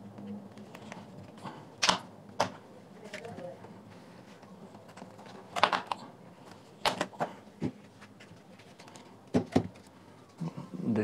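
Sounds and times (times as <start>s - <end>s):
plastic clips snapping loose: 1.8s - 2.5s.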